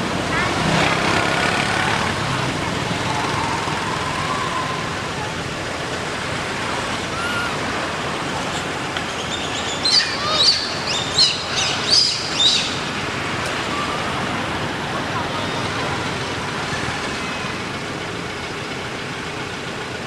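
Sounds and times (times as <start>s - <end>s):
baby monkey squealing: 7.1s - 7.6s, 9.8s - 12.6s.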